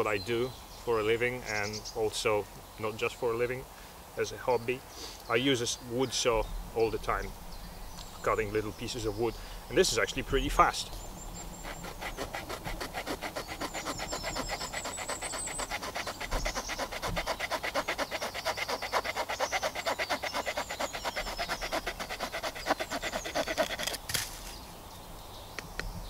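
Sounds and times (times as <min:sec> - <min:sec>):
small saw cutting a branch: 0:11.4 - 0:24.7.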